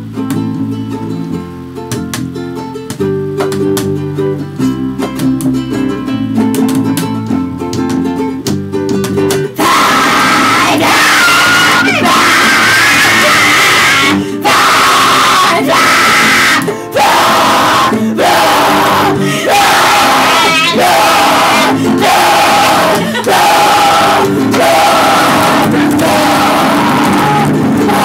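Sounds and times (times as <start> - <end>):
acoustic guitar picking melody: 0.0 - 28.0
loud wall of noise: 9.5 - 28.0
voices screaming: 9.6 - 28.0.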